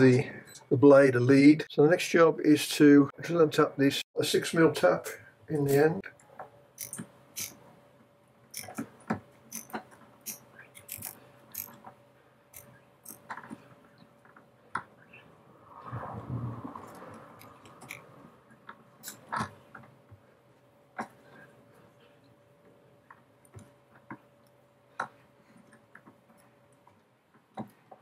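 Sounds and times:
hand tap clicking and creaking: 6.2 - 7.6, 8.5 - 12.0
rough rasping: 9.5 - 11.8.

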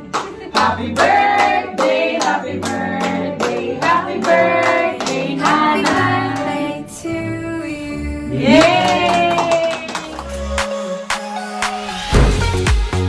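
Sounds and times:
people clapping in rhythm: 0.0 - 6.7, 8.5 - 11.3
music with bass line: 11.3 - 13.0.

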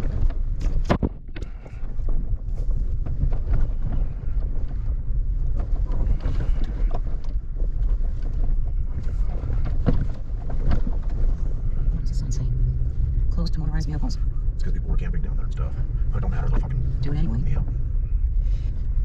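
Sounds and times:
small knocks and rattles: 0.0 - 12.0
vehicle engine and tyres rumbling: 0.0 - 19.0
wind buffeting microphone: 0.0 - 19.0.

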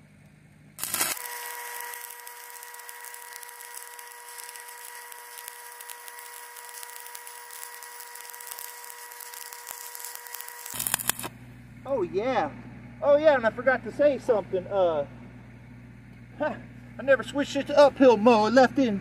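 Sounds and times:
steady pitched hum: 0.0 - 19.0
welding arc crackling hiss: 0.8 - 11.4.

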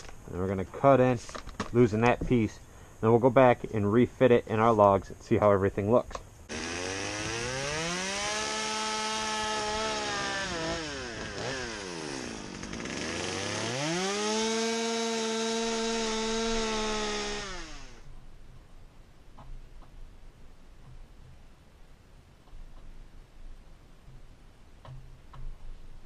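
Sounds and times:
chainsaw cutting wood: 6.5 - 18.1.

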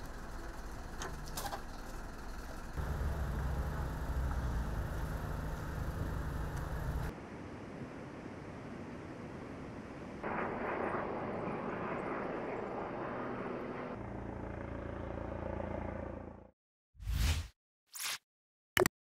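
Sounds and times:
low engine hum: 0.0 - 7.1, 12.6 - 16.5
outdoor background rush: 0.0 - 16.4.

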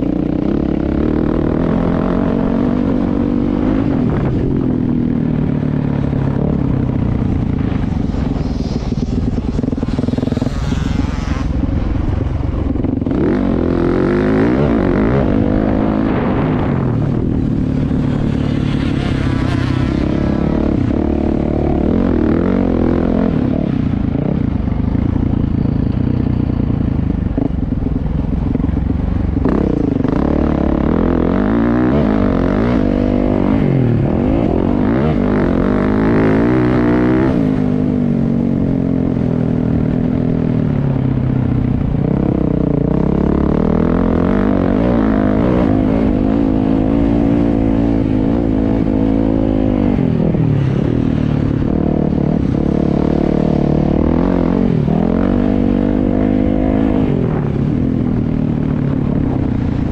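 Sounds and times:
dirt bike engine revving: 0.0 - 5.0, 5.8 - 24.4.

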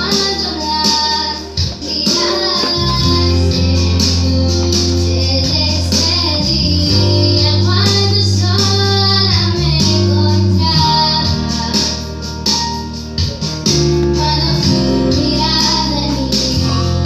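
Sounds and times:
woman singing into microphone: 0.0 - 12.4, 14.0 - 17.0
keyboard chords: 0.0 - 17.0.

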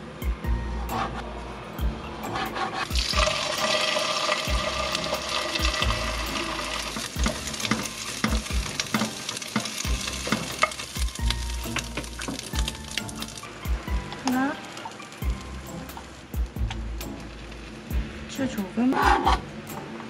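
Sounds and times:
patty sizzling in a pan: 2.3 - 19.5
utensil knocking against pan: 7.2 - 10.8.

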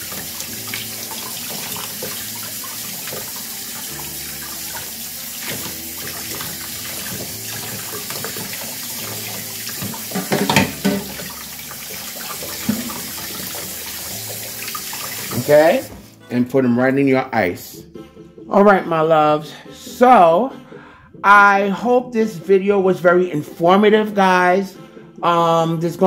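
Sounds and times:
tap running into metal sink: 0.0 - 16.0.

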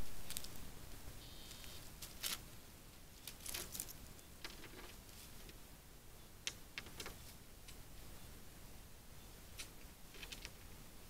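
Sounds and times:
rustling of dry leaves and twigs: 0.0 - 8.3
steady low hiss: 0.0 - 11.0.

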